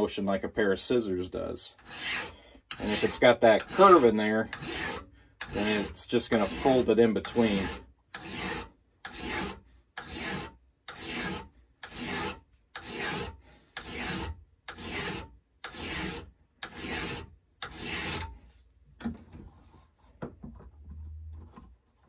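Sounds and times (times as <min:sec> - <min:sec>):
file strokes on steel blade: 0:01.8 - 0:18.4.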